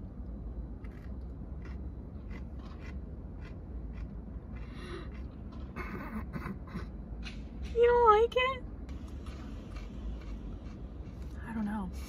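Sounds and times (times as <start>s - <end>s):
steady low hum: 0.0s - 12.0s
pickle crunching and chewing: 0.3s - 6.1s, 8.9s - 11.4s.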